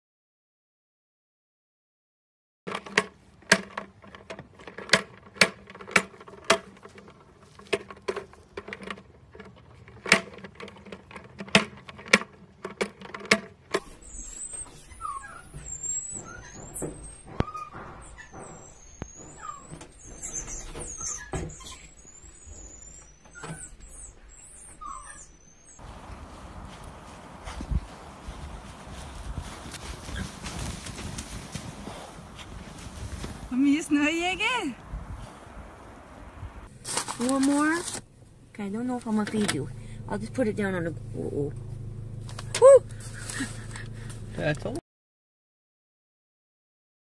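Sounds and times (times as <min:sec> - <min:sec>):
marmoset squeaky calls: 0:13.9 - 0:25.8.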